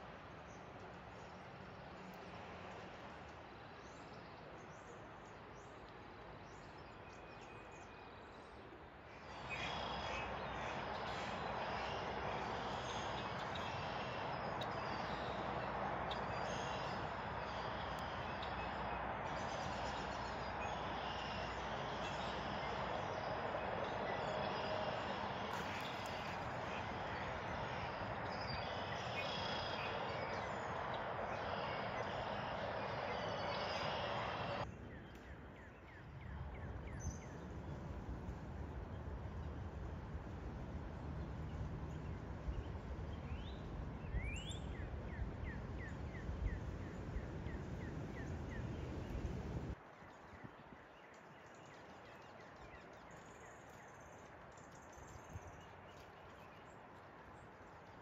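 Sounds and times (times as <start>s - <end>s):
steady background hiss: 8.6s - 34.7s.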